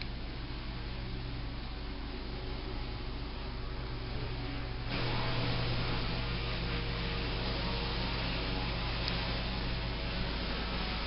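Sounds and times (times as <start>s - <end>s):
low electrical hum: 0.0s - 11.0s
even hiss: 4.2s - 11.0s.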